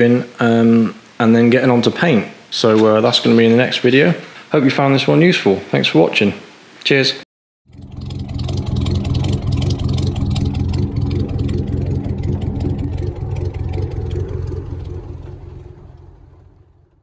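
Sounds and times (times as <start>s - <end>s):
powerful engine running hard: 7.7s - 16.9s.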